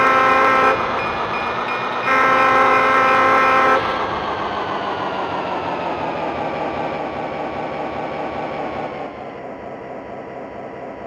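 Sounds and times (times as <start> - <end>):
diesel locomotive engine throbbing: 0.0 - 11.0
falling engine whine: 0.0 - 11.0.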